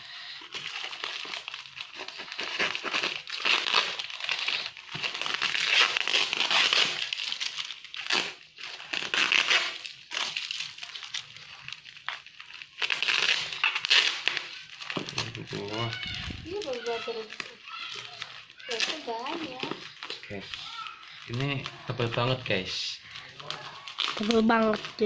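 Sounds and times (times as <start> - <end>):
plastic wrapping crinkling: 0.0 - 25.0.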